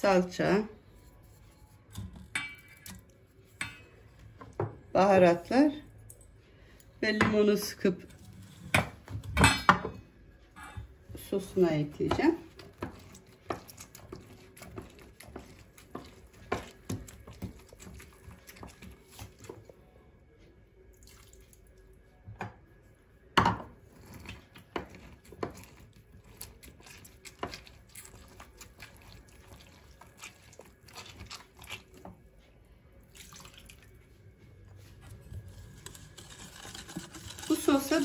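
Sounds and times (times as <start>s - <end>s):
lemon squishing on reamer: 11.2s - 19.9s, 23.8s - 34.0s
juice dripping: 20.9s - 21.9s, 33.0s - 34.0s.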